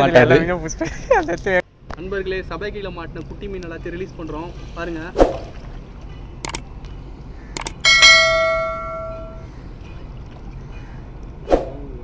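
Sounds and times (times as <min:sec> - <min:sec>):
short clicks: 0:06.4 - 0:06.6, 0:07.6 - 0:07.8
bell ding: 0:07.8 - 0:09.5.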